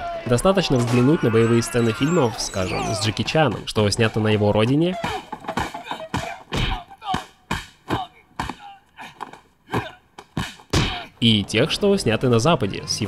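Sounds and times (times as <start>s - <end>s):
fighters grunting and crying out: 0.0s - 3.3s, 7.9s - 11.2s
punch and kick impacts: 5.0s - 8.6s, 9.8s - 11.1s.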